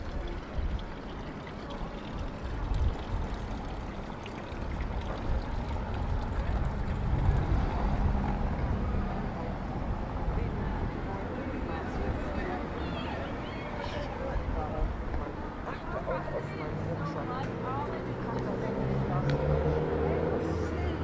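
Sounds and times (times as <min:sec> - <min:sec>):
traffic rumble: 0:00.0 - 0:21.0
vehicle engine hum: 0:05.1 - 0:12.0.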